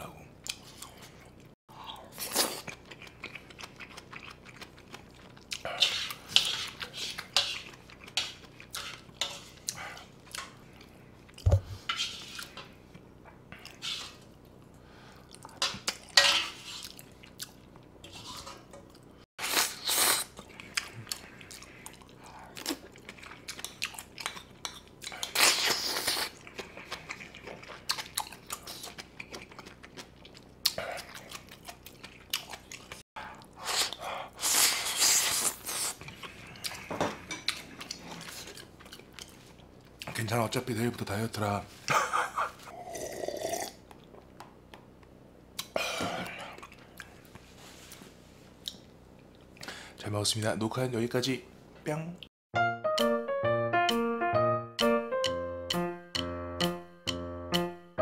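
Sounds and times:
chewing and mouth sounds: 0.4s - 11.6s, 16.8s - 40.2s, 45.6s - 47.4s, 48.6s - 49.7s
spoon scraping a grill pan: 5.8s - 9.6s, 11.8s - 12.7s, 15.6s - 16.8s, 18.0s - 18.8s.

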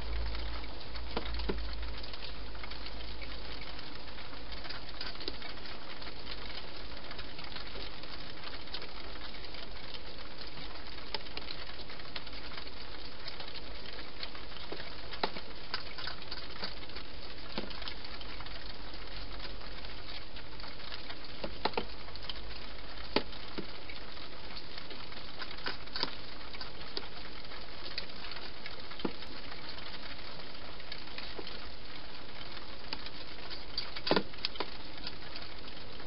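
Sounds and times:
hedgehog chewing clicks: 24.8s - 27.2s.

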